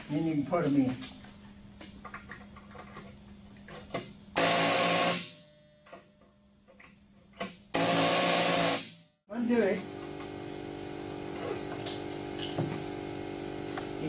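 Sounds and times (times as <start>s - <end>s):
pneumatic air gun hissing: 7.8s - 9.0s.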